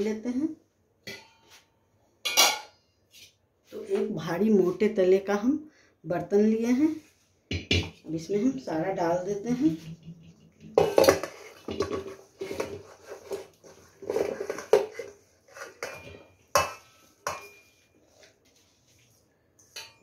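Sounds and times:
steel bowl scraping against pot: 10.0 - 17.7.

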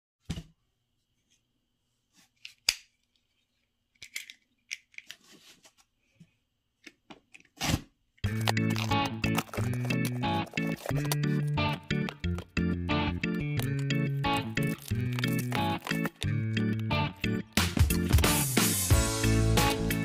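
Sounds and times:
knife cutting packing tape: 7.6 - 12.4, 13.6 - 16.4
music: 8.2 - 20.0.

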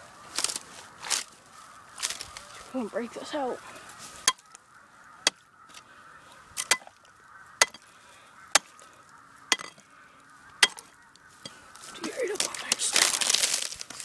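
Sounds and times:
rod knocking on frozen ice: 9.5 - 9.8, 10.6 - 10.9.

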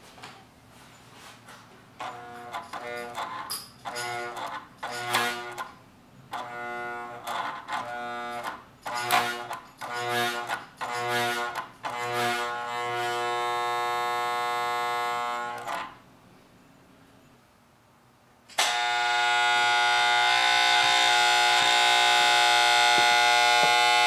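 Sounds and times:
vacuum cleaner motor buzzing: 6.4 - 15.9, 18.6 - 24.0.

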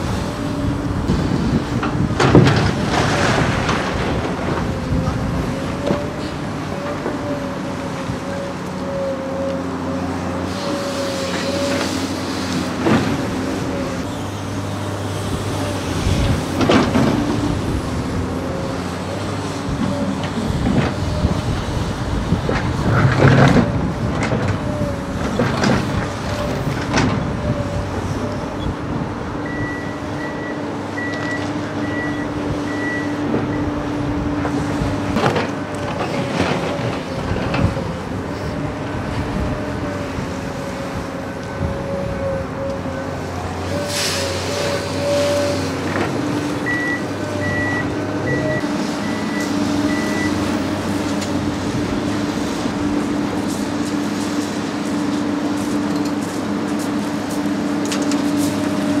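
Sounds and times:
excavator diesel engine running: 0.0 - 59.0
electronic warning alarm beeping: 46.7 - 50.4.

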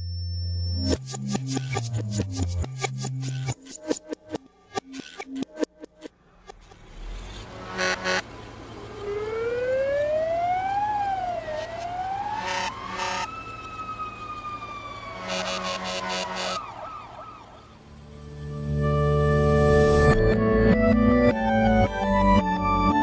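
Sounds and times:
reversed fire truck siren wailing: 6.4 - 23.0
reversed short horn blasts: 7.1 - 8.3, 12.4 - 13.3, 15.2 - 16.6.

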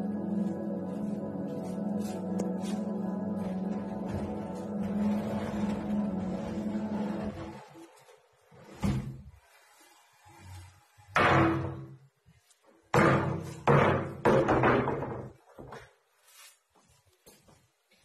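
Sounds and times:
wooden table panels knocking: 13.0 - 15.4.

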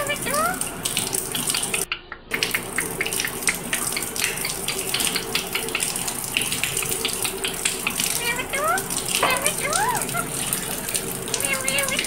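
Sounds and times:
droplets pattering: 0.0 - 12.0
water running and splashing: 0.0 - 12.0.

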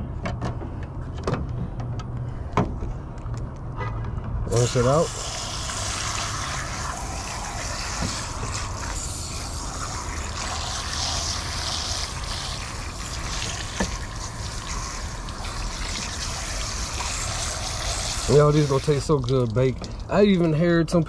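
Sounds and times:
hose nozzle spraying water: 4.5 - 19.8.

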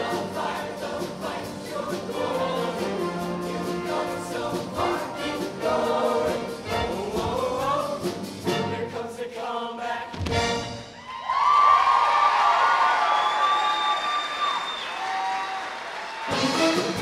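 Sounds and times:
instrumental accompaniment with beat: 0.0 - 8.8, 16.3 - 17.0
choir singing in harmony: 0.0 - 10.8.

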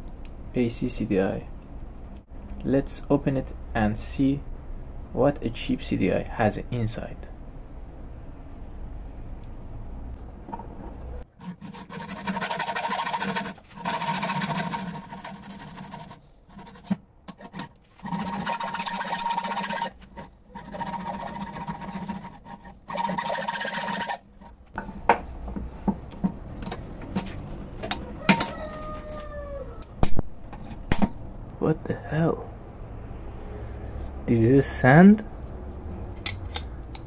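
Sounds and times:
hacksaw sawing through plastic: 11.4 - 24.6.

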